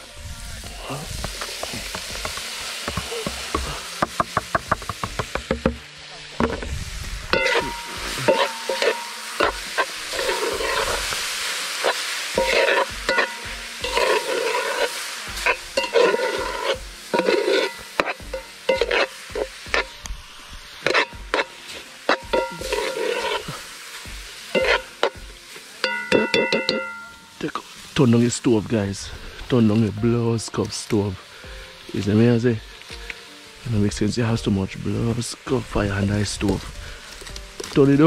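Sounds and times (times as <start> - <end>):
steady hiss of fire: 0.0 - 38.0
spoon scraping metal pot: 7.4 - 11.0, 12.4 - 14.9, 15.5 - 19.1, 20.8 - 21.5, 22.1 - 23.5, 24.6 - 25.2
spoon clinking against pot: 25.8 - 27.3.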